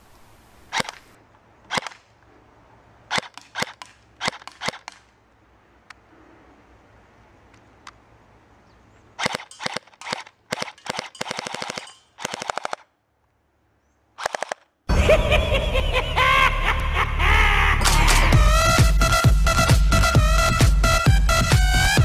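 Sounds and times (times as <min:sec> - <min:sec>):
airsoft pistol firing bursts: 0:01.7 - 0:02.0, 0:03.1 - 0:05.1, 0:09.2 - 0:12.9, 0:14.2 - 0:14.6
electronic music: 0:16.7 - 0:22.0.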